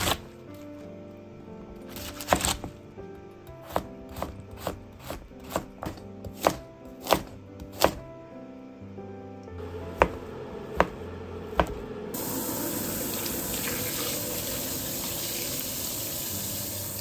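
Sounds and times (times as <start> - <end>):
knife slicing vegetables: 0.0 - 0.8, 1.8 - 2.8, 3.5 - 8.0
knife tapping cutting board: 3.7 - 8.0, 10.0 - 10.2, 10.8 - 11.0, 11.6 - 11.8.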